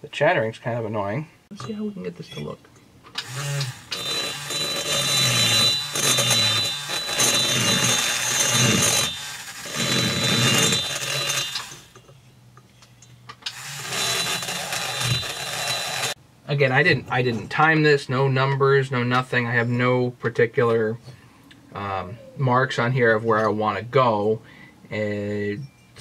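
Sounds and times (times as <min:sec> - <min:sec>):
rotary tool grinding metal: 0:03.2 - 0:16.2.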